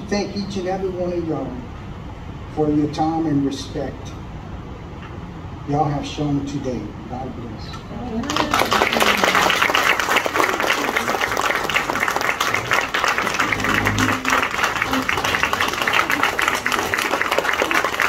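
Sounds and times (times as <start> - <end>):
audience applauding: 8.2 - 18.0.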